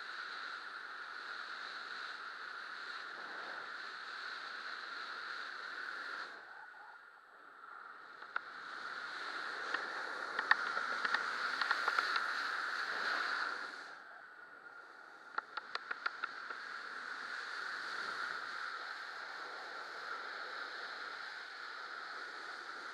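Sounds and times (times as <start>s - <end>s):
wind rushing over microphone: 0.0s - 22.9s
small clicks and taps: 8.2s - 8.5s, 9.7s - 12.4s, 15.3s - 16.6s.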